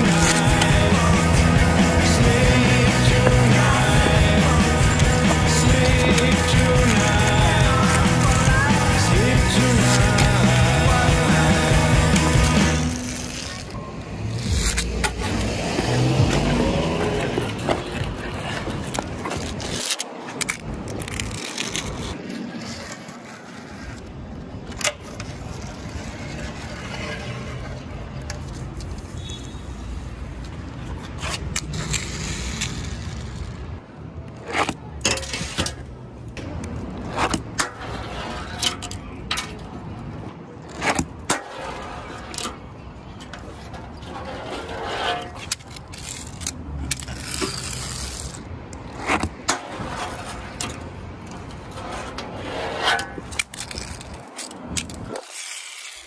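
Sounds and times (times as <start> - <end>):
low street rumble: 0.0 - 56.0
fingerboard scraping: 43.4 - 50.7, 51.5 - 54.2.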